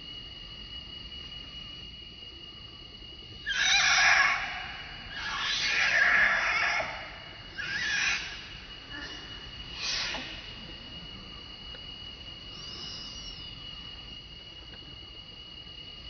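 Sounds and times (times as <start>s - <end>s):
monkey screaming: 3.4s - 10.5s.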